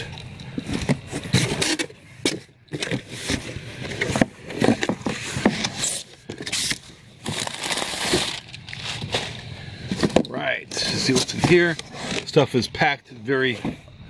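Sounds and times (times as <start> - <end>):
cardboard box being handled: 2.8 - 9.4
crumpled paper rustling: 2.9 - 10.0.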